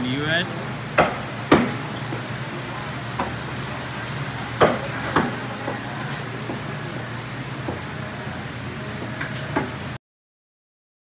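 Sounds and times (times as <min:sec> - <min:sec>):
knife chopping on cutting board: 0:01.0 - 0:01.8, 0:04.6 - 0:05.4.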